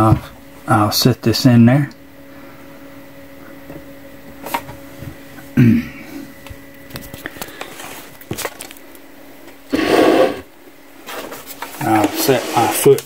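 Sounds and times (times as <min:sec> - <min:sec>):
faint steady hum: 0:00.0 - 0:13.0
person grunting: 0:05.6 - 0:06.2.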